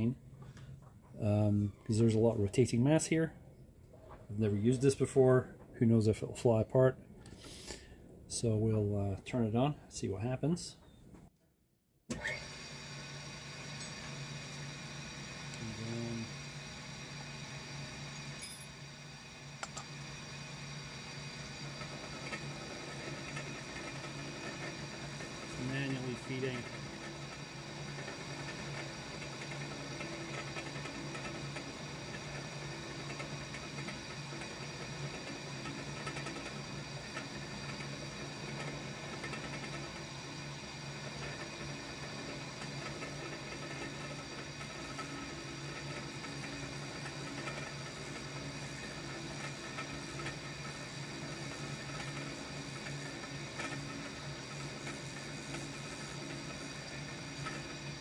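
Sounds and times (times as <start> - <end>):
mill spindle hum and gear whine: 12.1 - 58.0.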